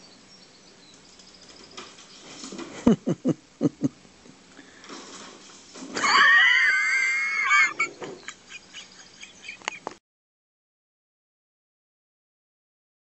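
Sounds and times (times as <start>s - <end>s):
animal screeching: 6.0s - 7.8s.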